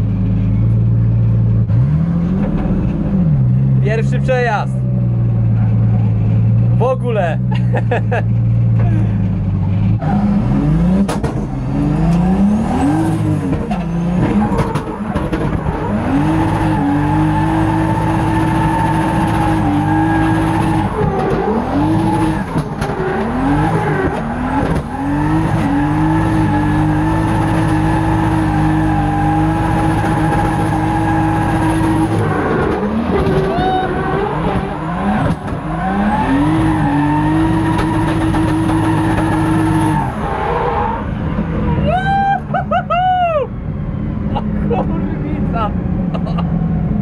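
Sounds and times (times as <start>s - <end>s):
car engine revving hard: 9.9s - 40.5s.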